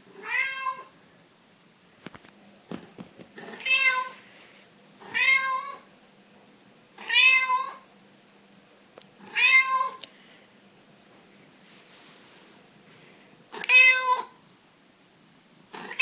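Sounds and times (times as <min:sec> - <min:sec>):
cat meowing: 0:00.2 - 0:00.9, 0:03.4 - 0:04.2, 0:05.0 - 0:05.8, 0:07.0 - 0:07.8, 0:09.2 - 0:10.0, 0:13.6 - 0:14.4.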